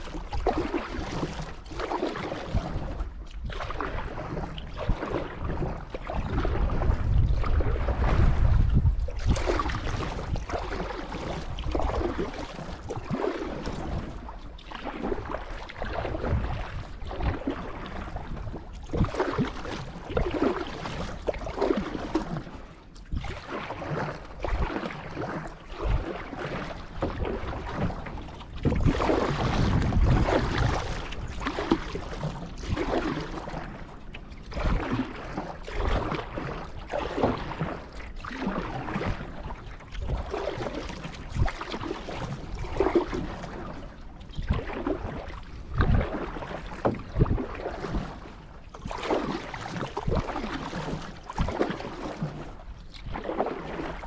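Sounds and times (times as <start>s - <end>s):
canoe paddle strokes in water: 0.0s - 54.0s
water splashing along hull: 0.0s - 54.0s.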